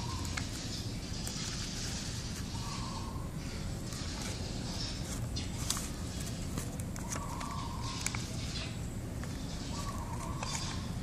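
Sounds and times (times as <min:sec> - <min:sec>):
paper rustling and crinkling: 0:03.8 - 0:08.4.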